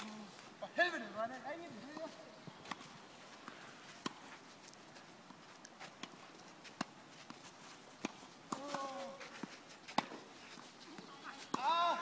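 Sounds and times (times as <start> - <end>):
tennis balls being struck: 8.0 - 10.3.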